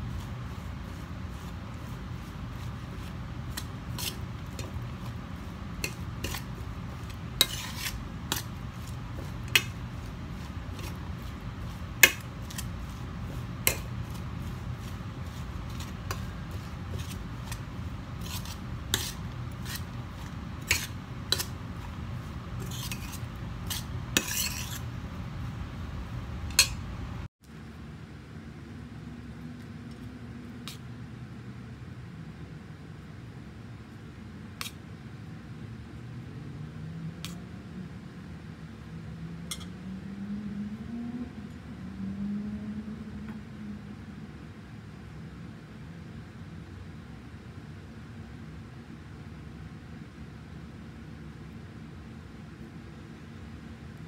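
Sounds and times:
metal spoon scraping steel bowl: 0:00.0 - 0:25.0
steady low hum: 0:00.0 - 0:54.0.

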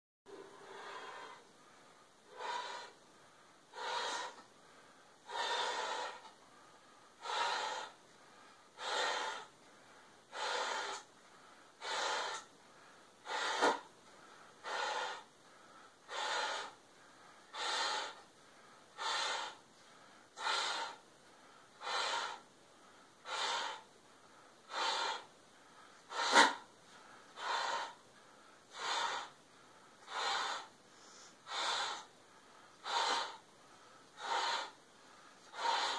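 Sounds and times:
person breathing hard into tube: 0:00.3 - 0:35.9
sharp gasps: 0:15.5 - 0:35.9.

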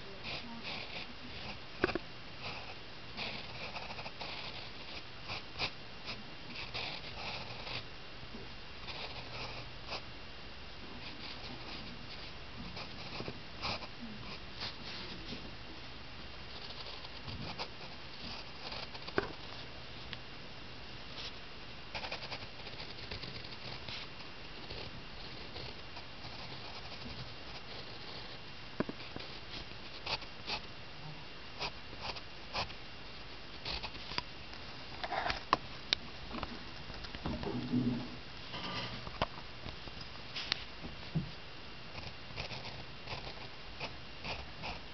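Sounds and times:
pencil scratching on paper: 0:00.2 - 0:05.8, 0:06.5 - 0:07.8, 0:08.8 - 0:10.0, 0:11.0 - 0:15.2, 0:16.5 - 0:19.6, 0:22.0 - 0:28.4, 0:33.6 - 0:34.1, 0:35.0 - 0:35.4, 0:42.0 - 0:44.8.

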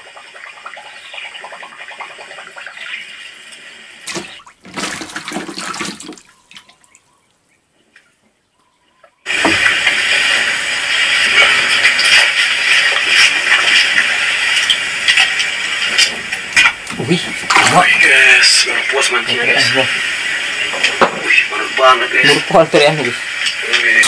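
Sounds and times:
water splashing and sloshing: 0:00.0 - 0:07.3, 0:09.3 - 0:19.8.

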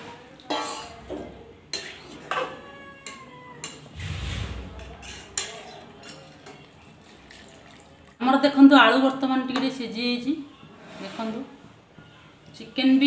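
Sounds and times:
dull low rumble: 0:04.0 - 0:05.1.

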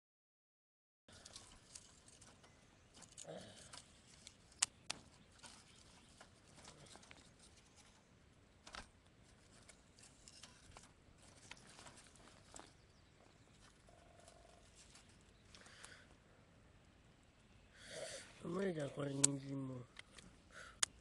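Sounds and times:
wood fire crackling and popping: 0:01.3 - 0:05.6.

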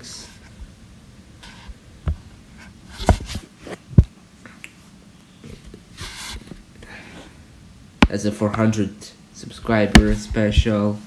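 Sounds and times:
handling taps and knocks: 0:09.9 - 0:10.6.

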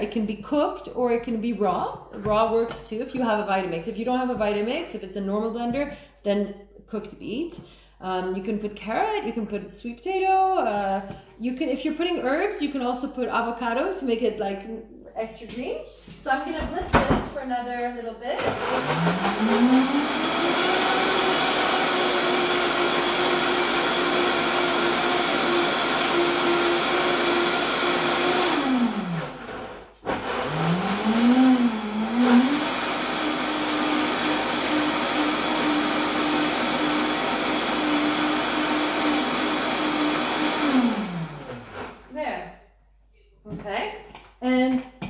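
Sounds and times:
blender motor running: 0:18.4 - 0:42.1.

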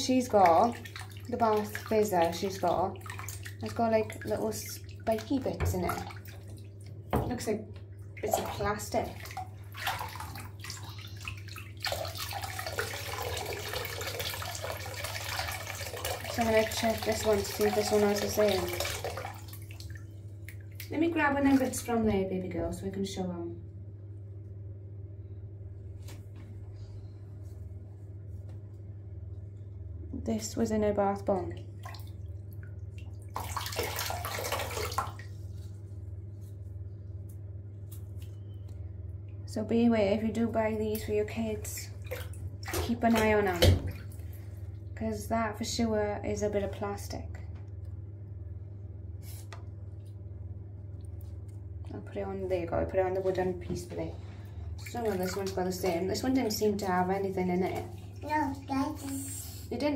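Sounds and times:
water trickling into bath: 0:00.0 - 0:22.1, 0:31.3 - 0:35.9, 0:37.2 - 0:45.3, 0:49.7 - 0:59.8
bath water stirred by hand: 0:00.0 - 0:22.2, 0:31.2 - 0:39.6, 0:40.2 - 0:45.3, 0:46.2 - 0:59.9
low hum: 0:18.5 - 0:33.3.

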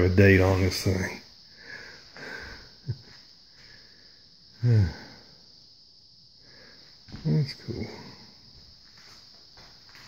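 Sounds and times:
faint high hiss: 0:00.0 - 0:10.0
tiny grunt: 0:04.6 - 0:05.2.

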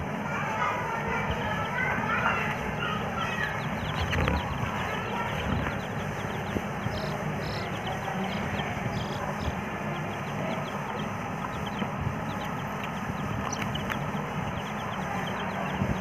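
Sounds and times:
baby chicks peeping: 0:00.0 - 0:16.0
low hum: 0:01.2 - 0:16.0.

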